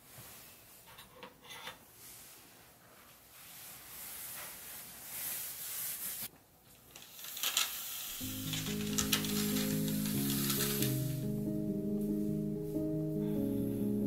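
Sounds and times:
fabric rustling on a bed: 2.0 - 6.3
curtains drawn along rail: 3.6 - 11.3.

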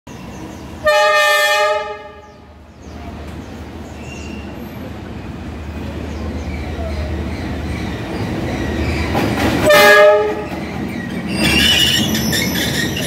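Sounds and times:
train rumbling: 0.1 - 13.0
locomotive horn blast: 0.8 - 2.4, 9.6 - 10.5.

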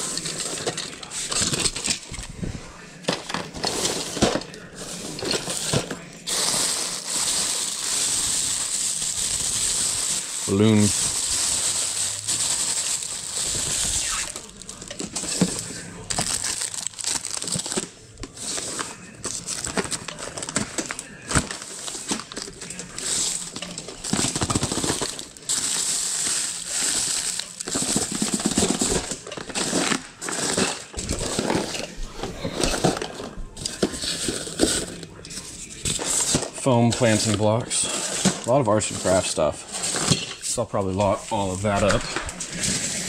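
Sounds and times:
plastic bag rustling and crinkling: 0.0 - 43.0.

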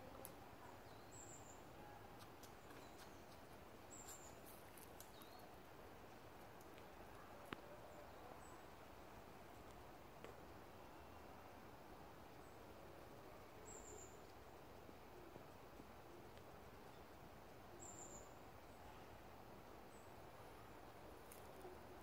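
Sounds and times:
outdoor background hiss: 0.0 - 22.0
soft clicks: 6.4 - 7.7.

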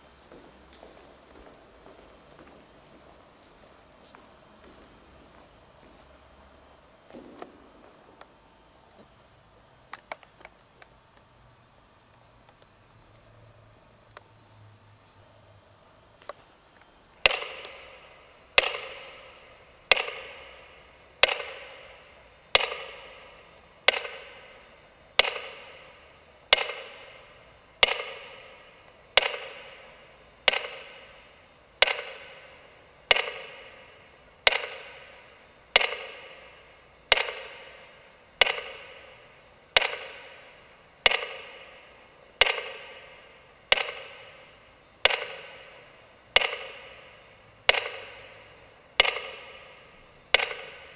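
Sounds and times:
reverberant percussive strikes: 4.6 - 8.4, 17.2 - 50.9.

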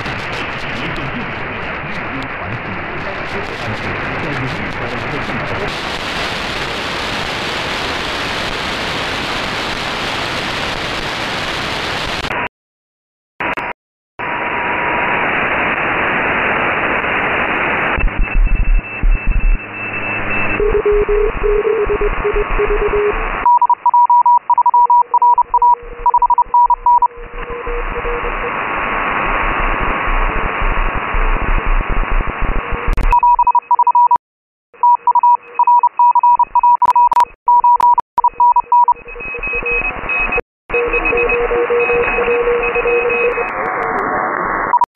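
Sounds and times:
radio band noise hiss: 0.0 - 12.4, 25.2 - 33.1, 39.9 - 44.8
morse code beeping tones: 18.0 - 28.4, 33.1 - 34.2, 34.8 - 43.5.

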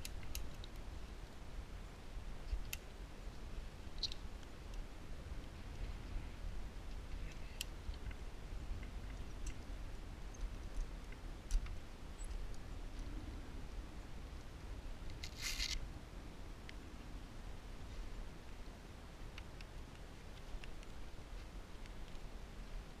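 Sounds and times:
short rustling hiss: 15.2 - 15.8.

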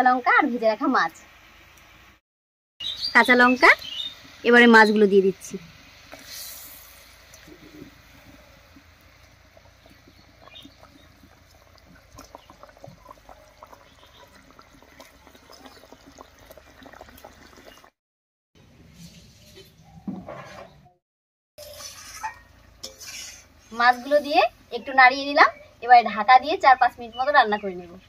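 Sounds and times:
splashing sizzle: 0.0 - 2.2, 2.8 - 18.0, 21.6 - 27.5
gravy bubbling and crackling: 2.8 - 18.0.

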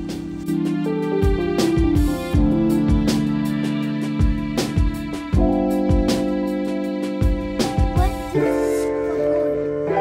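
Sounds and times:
low kick drum beat: 1.2 - 3.5, 4.2 - 6.3, 7.2 - 8.4.

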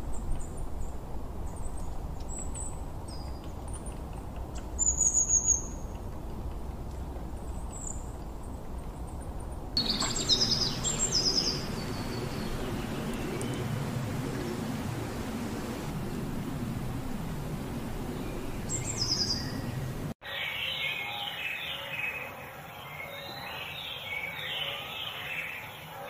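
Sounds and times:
small birds chirping: 0.0 - 25.9
low steady background noise: 0.0 - 26.0
lower falling bird chirps: 9.8 - 15.9, 16.6 - 20.0.

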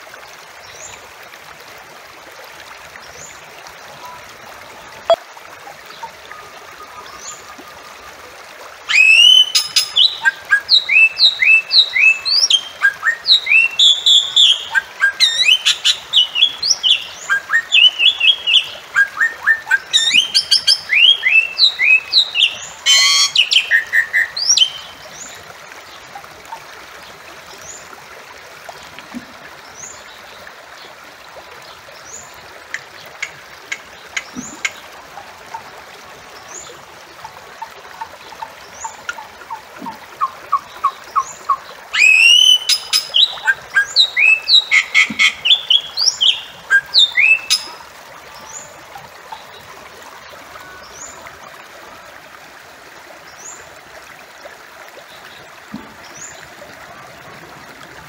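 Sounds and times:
bird chirping and whistling: 8.9 - 14.6, 20.0 - 24.8, 42.0 - 47.7
harsh buzzy bird call: 22.8 - 24.6.

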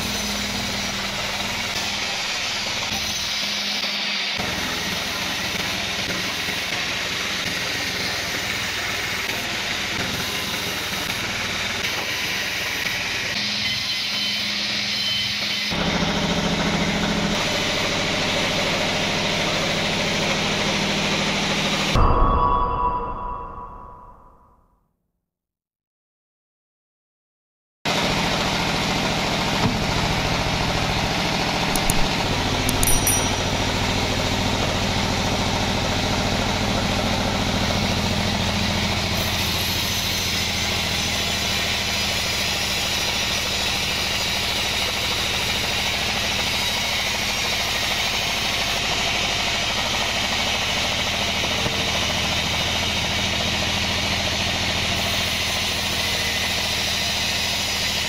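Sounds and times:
band sawmill sawing log: 0.0 - 21.9, 33.8 - 58.0.

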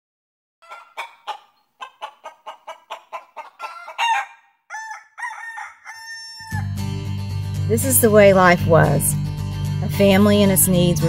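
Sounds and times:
chickens clucking: 0.6 - 6.6.

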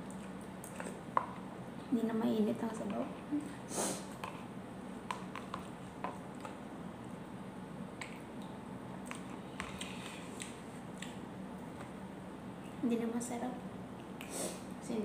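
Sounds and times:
soft eating sounds: 0.0 - 12.9
steady low hum: 0.0 - 15.0.

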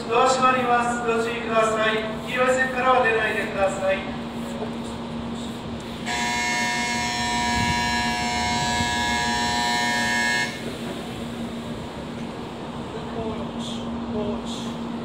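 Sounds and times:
electric bell ringing: 6.1 - 10.6.

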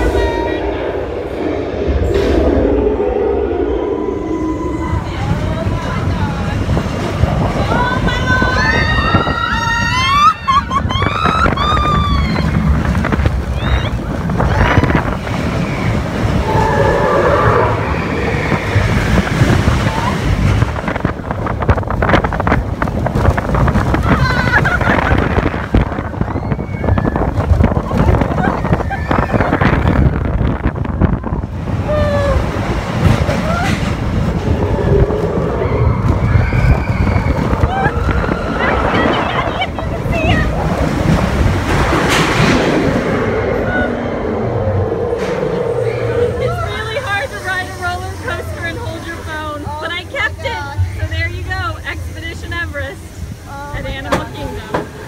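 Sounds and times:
roller coaster rumbling on track: 0.0 - 55.0
wind buffeting microphone: 0.0 - 55.0
riders screaming and shouting: 7.4 - 21.0, 23.9 - 41.0.

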